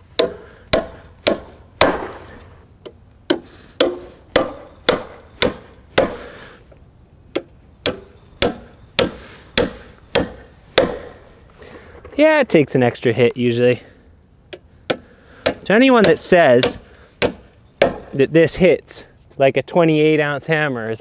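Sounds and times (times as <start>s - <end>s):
hammer driving nails into wood: 3.3s - 6.2s, 7.3s - 11.2s.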